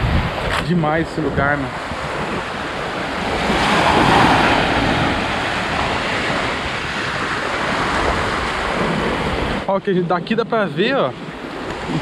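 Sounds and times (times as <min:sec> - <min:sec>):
small waves breaking on beach: 0:00.0 - 0:12.0
wind buffeting microphone: 0:00.0 - 0:12.0.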